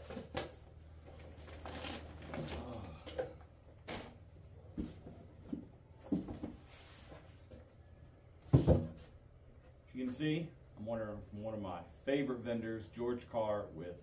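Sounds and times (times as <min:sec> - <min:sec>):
plastic packaging and cardboard rustling: 0:00.0 - 0:02.9
cardboard box thumping on floor: 0:08.5 - 0:09.0.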